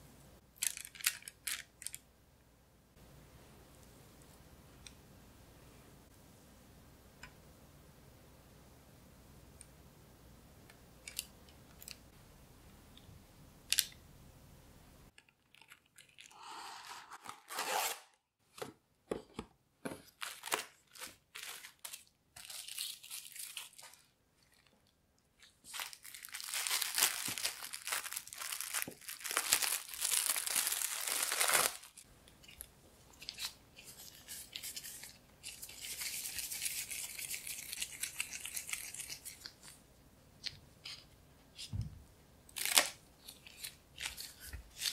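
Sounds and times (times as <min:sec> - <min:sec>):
plastic gloves crinkling: 0:15.3 - 0:18.0, 0:20.0 - 0:39.8, 0:42.6 - 0:44.9
rustling or tearing: 0:20.2 - 0:24.1, 0:25.4 - 0:39.8.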